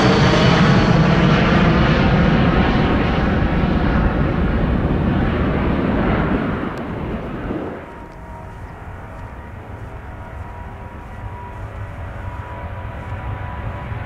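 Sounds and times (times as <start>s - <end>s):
jet airliner engine noise: 0.0s - 14.0s
steady low rumble: 0.0s - 14.0s
faint thin steady tones: 7.8s - 14.0s.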